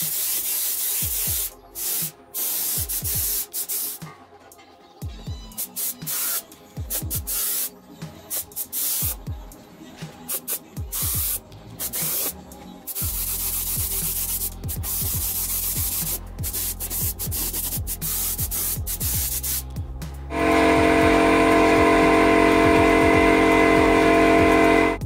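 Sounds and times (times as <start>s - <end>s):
paint spray gun hissing: 0.0s - 4.0s, 5.6s - 7.7s, 8.3s - 9.2s, 10.3s - 12.3s, 12.9s - 19.7s
sustained chord of steady tones: 20.3s - 25.0s.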